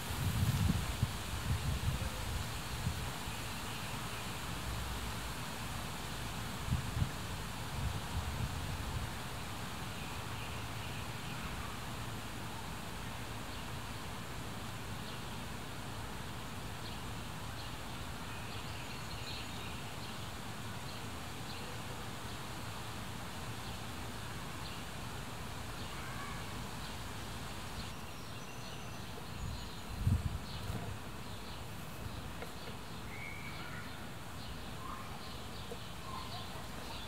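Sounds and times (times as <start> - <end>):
background hiss: 0.0 - 37.0
faint bird chirps: 25.8 - 26.6, 32.4 - 37.0.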